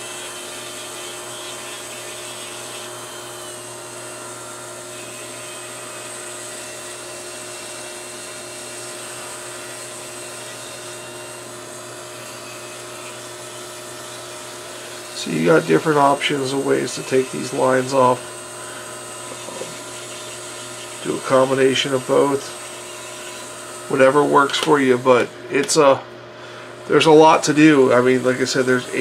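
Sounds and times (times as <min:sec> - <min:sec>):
rotary tool grinding plastic: 0:14.1 - 0:25.9.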